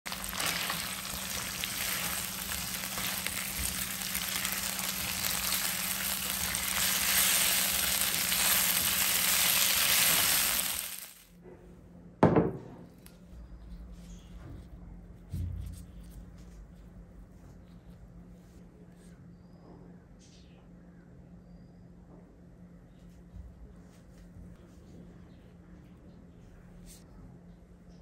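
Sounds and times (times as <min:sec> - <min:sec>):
chicken sizzling in a wok: 0:00.1 - 0:11.3.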